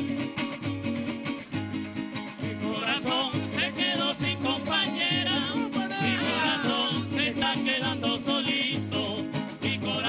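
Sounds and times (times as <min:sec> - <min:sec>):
strummed guitars and cuatros: 0:00.0 - 0:10.0
men singing: 0:02.4 - 0:10.0.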